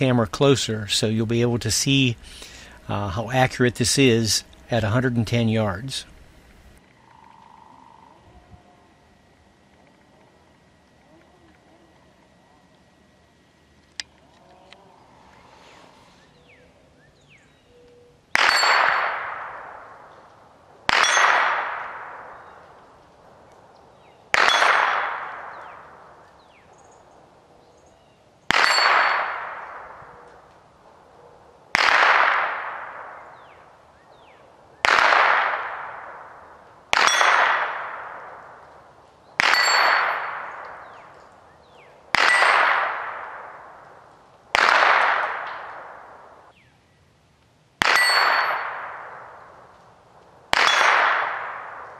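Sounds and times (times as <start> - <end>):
bullets clanging on steel targets: 18.4 - 19.3, 20.9 - 21.6, 24.4 - 25.1, 28.5 - 29.8, 36.9 - 37.6, 39.4 - 41.3, 42.2 - 43.1, 47.8 - 49.0, 50.6 - 51.5.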